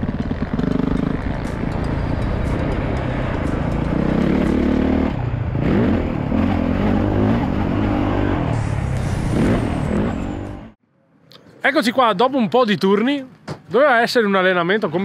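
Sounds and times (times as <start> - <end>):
motocross bike engine revving: 0.0 - 10.8.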